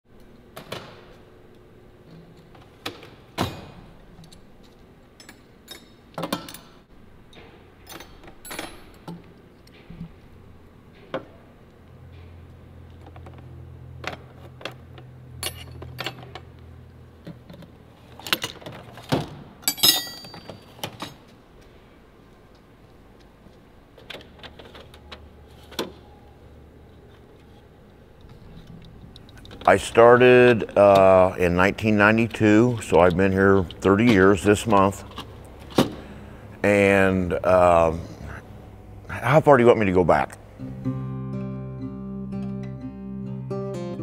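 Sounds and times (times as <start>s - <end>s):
metal tools clinking: 15.4s - 16.4s, 19.6s - 21.2s
low hum: 28.0s - 44.0s.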